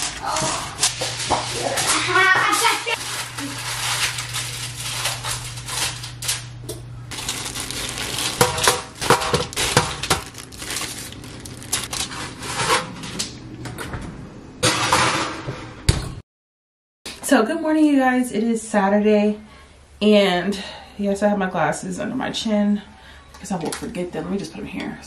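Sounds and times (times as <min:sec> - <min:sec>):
plastic and foil crinkling: 0:00.0 - 0:06.5, 0:07.1 - 0:12.7.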